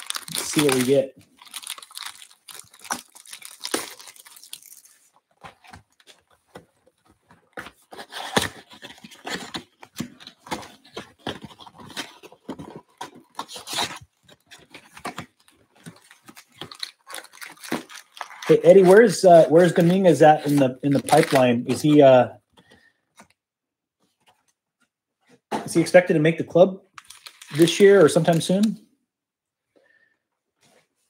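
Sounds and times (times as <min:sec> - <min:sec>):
plastic wrap tearing and crinkling: 0:00.0 - 0:06.3, 0:07.0 - 0:22.2, 0:26.9 - 0:28.8.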